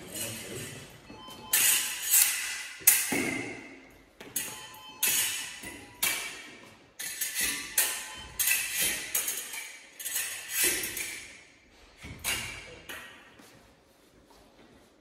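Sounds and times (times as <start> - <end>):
fencing blades clashing: 0.0 - 13.4.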